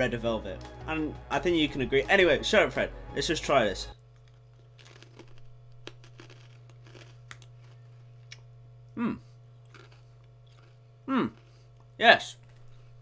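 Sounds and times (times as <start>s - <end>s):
chewing crunchy pretzels: 4.0s - 13.0s
person murmuring: 9.0s - 9.3s, 11.1s - 11.4s.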